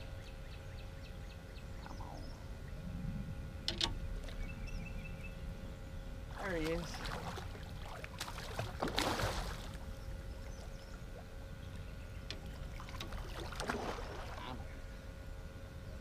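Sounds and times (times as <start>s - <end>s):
steady low rumble: 0.0s - 16.0s
fish splashing at water surface: 6.7s - 9.8s, 12.7s - 14.4s.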